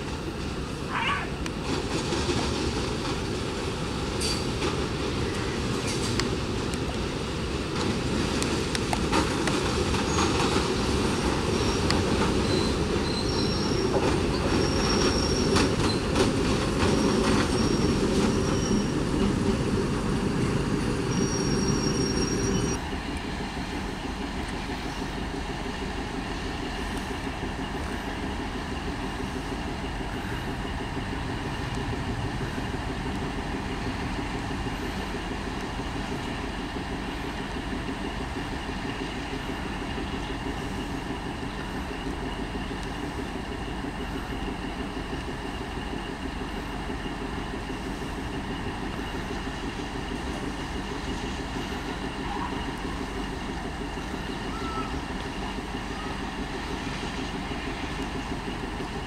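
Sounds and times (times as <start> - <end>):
train rumbling by: 0.0 - 59.0
wheels clicking over rail joints: 1.4 - 23.2
high-pitched wheel squeals: 21.1 - 22.8, 54.4 - 55.1.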